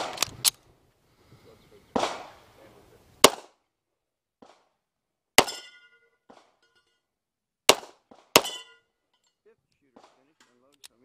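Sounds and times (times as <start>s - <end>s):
pistol shot: 0.0s - 0.2s, 1.9s - 2.4s, 3.2s - 3.6s, 7.7s - 8.7s
steel target clang: 5.4s - 7.0s, 8.4s - 8.9s.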